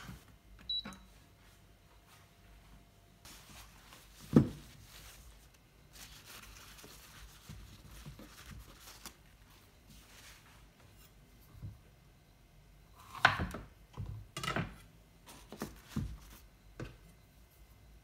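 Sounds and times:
paper and plastic wrapping rustling: 3.3 - 10.6.

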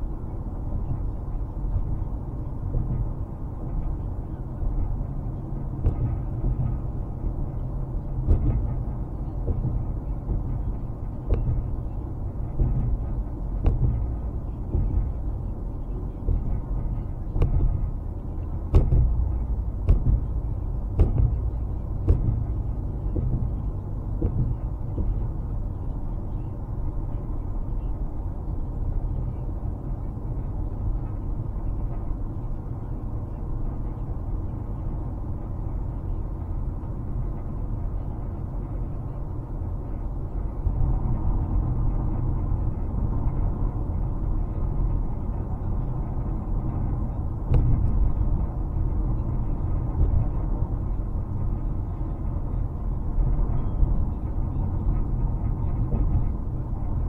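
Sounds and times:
car road and engine rumble: 0.0 - 57.0
short knocks: 8.2 - 10.5, 12.6 - 15.3, 18.6 - 25.2.

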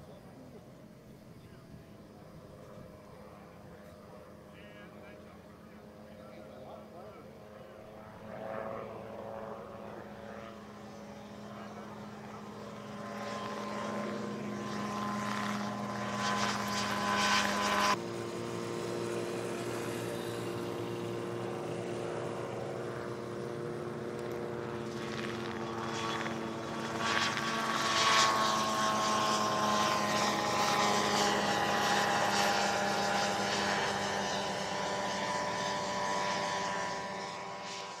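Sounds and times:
helicopter engine and rotor: 0.0 - 38.0.

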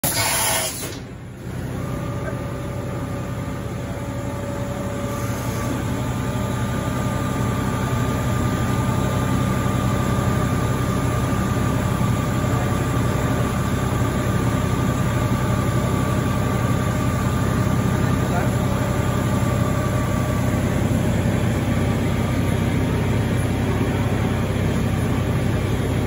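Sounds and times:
machine hum with whine: 0.0 - 26.0.

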